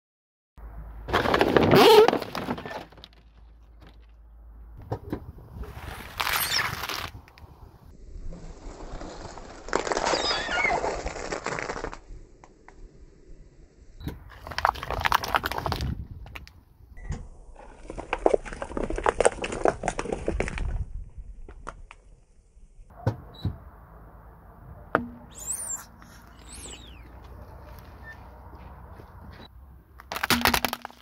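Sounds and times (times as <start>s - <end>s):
high balloon squeaks: 1.6s - 2.8s, 6.0s - 7.1s, 9.8s - 11.8s, 25.3s - 27.3s
tire crunching dry spaghetti: 5.6s - 7.5s, 8.1s - 12.1s, 14.3s - 16.6s, 17.6s - 21.3s, 25.3s - 31.0s.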